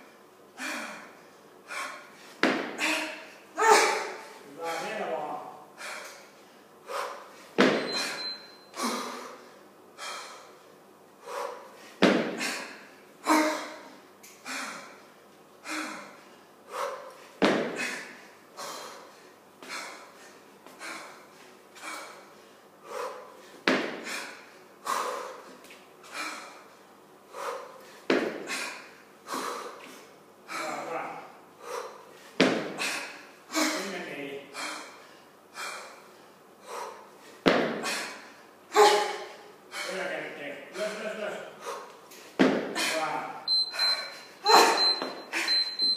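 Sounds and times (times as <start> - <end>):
hard rhythmic breathing: 0.0 - 5.0, 5.7 - 30.9, 31.5 - 33.8, 34.4 - 45.9
kettlebell thump: 2.4 - 2.8, 7.6 - 8.2, 12.0 - 12.4, 32.4 - 32.8, 37.4 - 37.9, 42.4 - 42.8.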